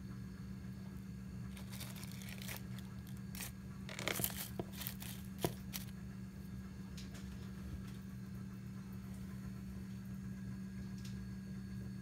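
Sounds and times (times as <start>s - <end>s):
steady low hum: 0.0s - 12.0s
dry leaves rustling and crackling: 1.5s - 5.9s.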